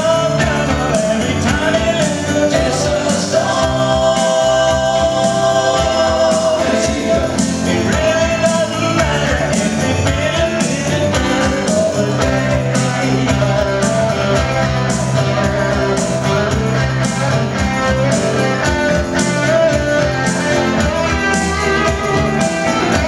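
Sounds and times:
bass guitar: 0.0s - 23.0s
electric guitar: 0.0s - 23.0s
keyboards: 0.0s - 23.0s
steady drum beat: 0.0s - 23.0s.

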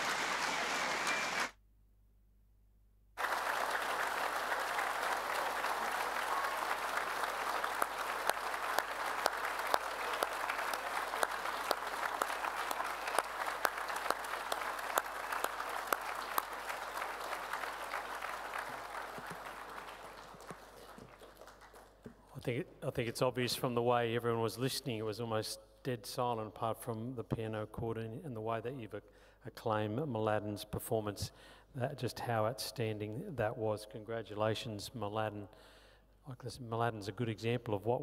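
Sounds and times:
audience applauding: 0.0s - 1.6s, 3.2s - 22.2s.

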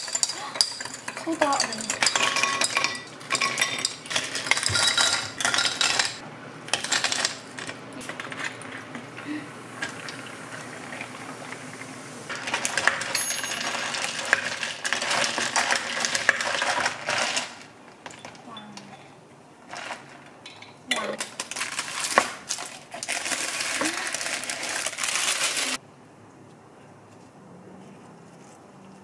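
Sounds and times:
sparkling water pouring over ice: 9.2s - 17.6s, 21.2s - 25.8s.

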